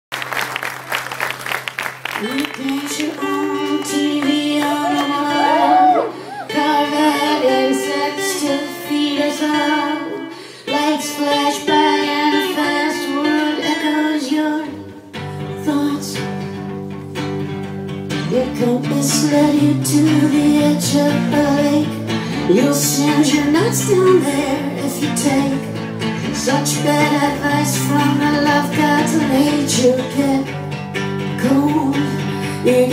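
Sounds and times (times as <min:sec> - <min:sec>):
acoustic guitar: 0:01.1 - 0:32.9
woman singing into a microphone: 0:02.2 - 0:16.7, 0:18.1 - 0:32.9.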